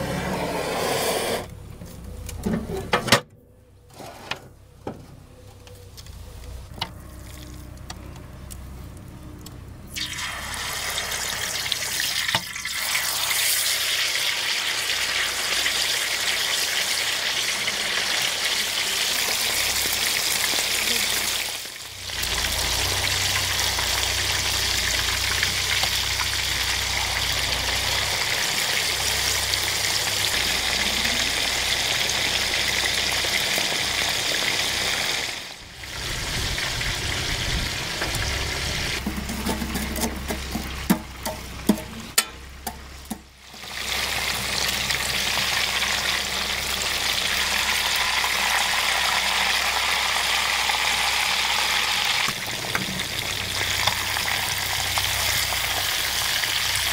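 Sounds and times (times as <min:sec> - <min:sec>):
steak sizzling in oil: 0:09.9 - 0:30.7, 0:43.5 - 0:56.9.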